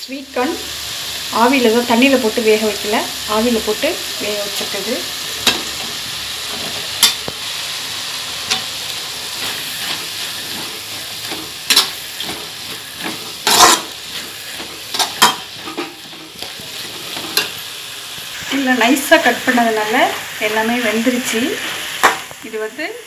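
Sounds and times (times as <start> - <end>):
vegetables sizzling in pan: 0.0 - 23.0
spatula scraping metal pan: 8.4 - 17.6.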